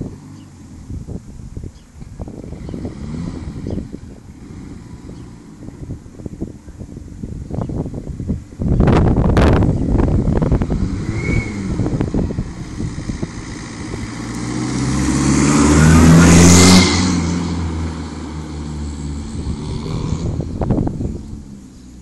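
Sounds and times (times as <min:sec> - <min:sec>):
wind buffeting microphone: 0:00.0 - 0:22.0
car passing by: 0:10.5 - 0:21.3.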